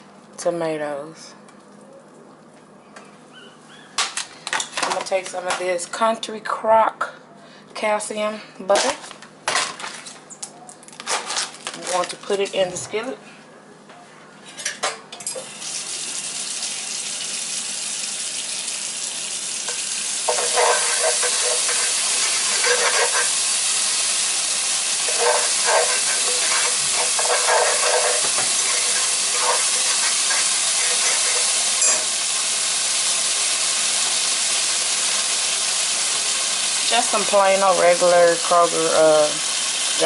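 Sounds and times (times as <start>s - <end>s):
butter sizzling in a skillet: 16.7s - 40.0s
scraping in a pan: 20.3s - 23.4s, 25.0s - 32.1s.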